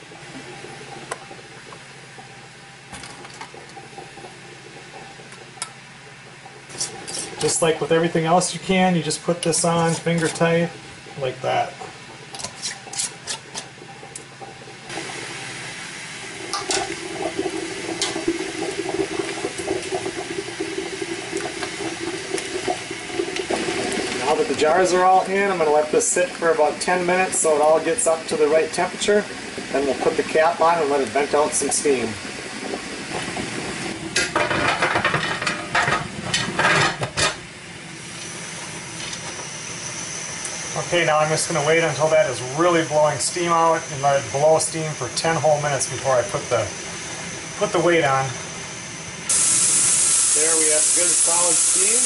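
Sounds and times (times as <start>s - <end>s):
water bubbling in canner: 0.0s - 36.3s, 37.6s - 52.0s
metal lid scraping against rim: 6.7s - 7.5s
high steady steam whistle: 38.0s - 52.0s.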